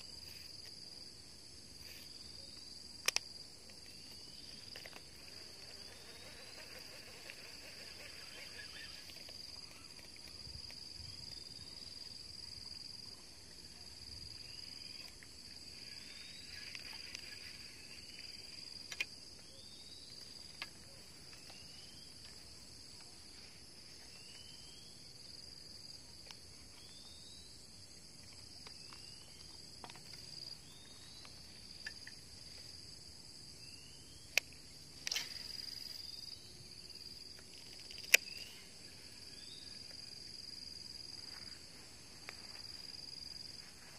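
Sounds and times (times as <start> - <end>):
crickets buzzing: 0.0 - 43.9
sharp clicks: 37.8 - 38.5.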